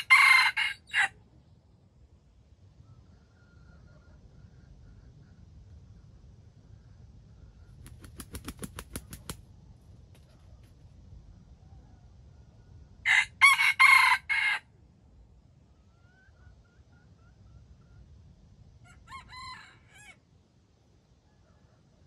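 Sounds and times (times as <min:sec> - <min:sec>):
rooster crowing: 0:00.0 - 0:01.2, 0:13.0 - 0:14.7, 0:18.8 - 0:20.2.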